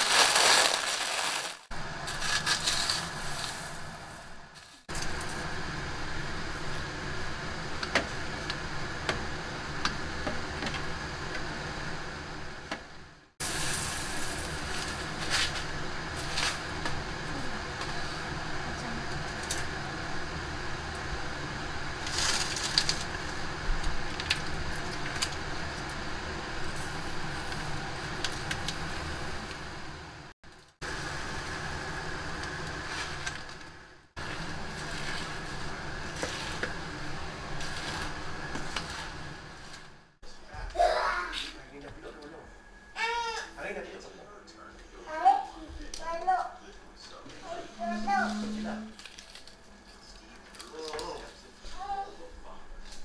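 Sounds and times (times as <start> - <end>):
corn flakes crackling: 0.0 - 4.0, 48.9 - 49.6
steady hum: 0.0 - 53.0.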